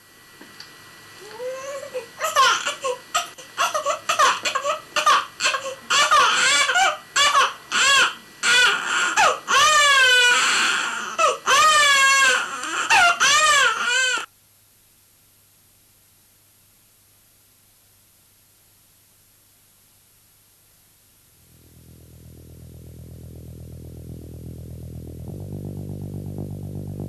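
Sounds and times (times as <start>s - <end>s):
baby crying: 1.2s - 14.3s.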